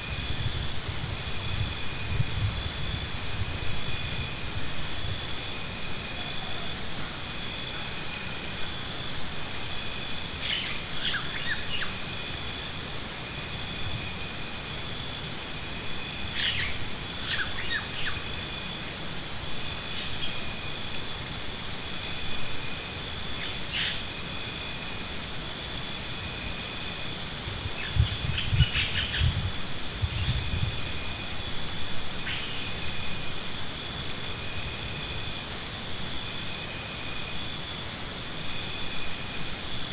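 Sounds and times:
pulsing insect trill: 0.0 - 39.9
insects singing: 13.3 - 39.9.

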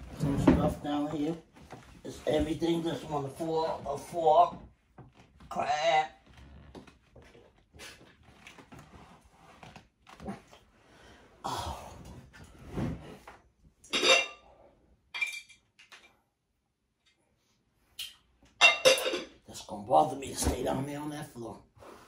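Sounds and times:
cutlery and dishes clinking: 18.0 - 19.4.

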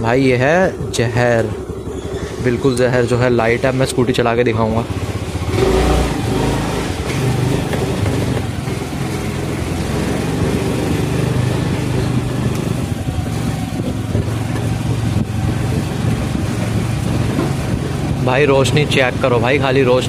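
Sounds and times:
scooter engine running: 0.0 - 20.0.

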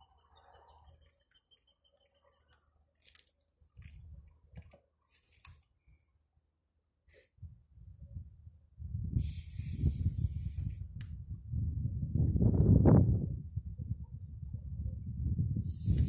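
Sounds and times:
faint rapid high peeping: 0.0 - 3.0
wind rumbling on microphone: 7.4 - 16.0.

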